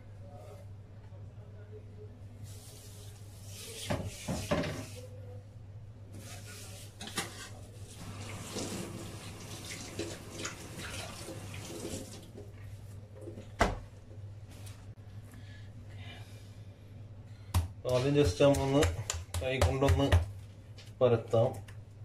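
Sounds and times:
hand wiping wet countertop: 0:02.4 - 0:05.1.

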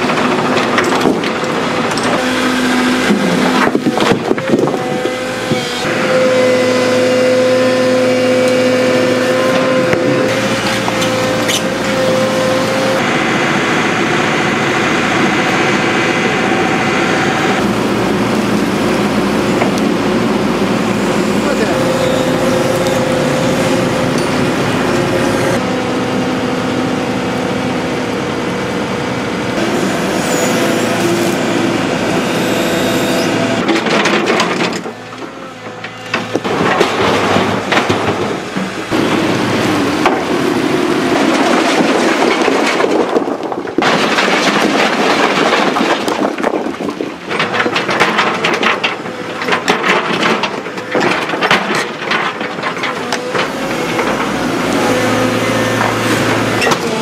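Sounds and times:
excavator diesel engine running: 0:00.0 - 0:57.0
rocks grinding and clacking: 0:35.8 - 0:57.0.

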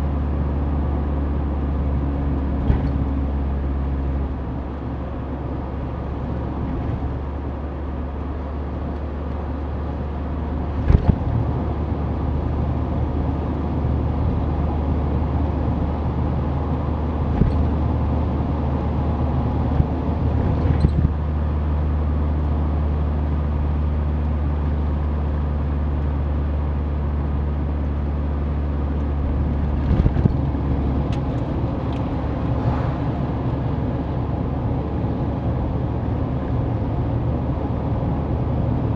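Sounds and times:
car engine running: 0:00.0 - 0:38.9
road and tyre noise: 0:00.0 - 0:38.9
knocks from road bumps: 0:02.6 - 0:03.1, 0:10.8 - 0:11.5.

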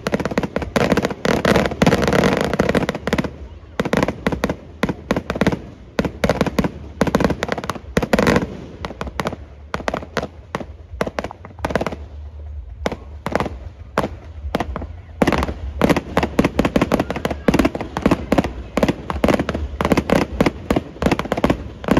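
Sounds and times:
fireworks bangs and crackles: 0:00.0 - 0:21.9.

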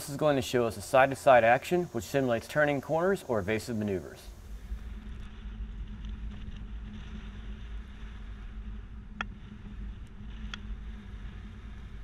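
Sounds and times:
wind on microphone: 0:03.9 - 0:12.0
engine and tyres rumbling: 0:04.3 - 0:12.0.

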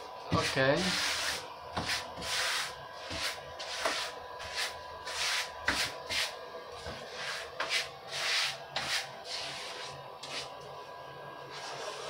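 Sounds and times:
hand scraping on stone tile: 0:06.9 - 0:10.5.

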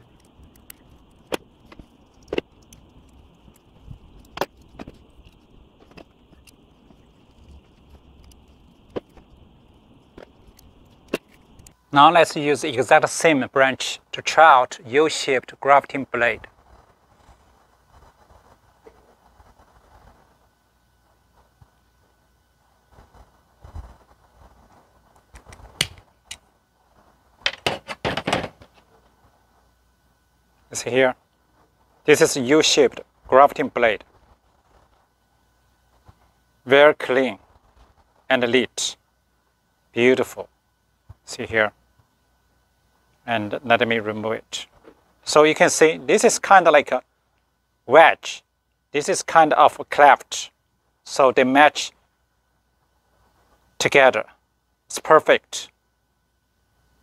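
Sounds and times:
tool clicks and knocks: 0:27.5 - 0:28.7.

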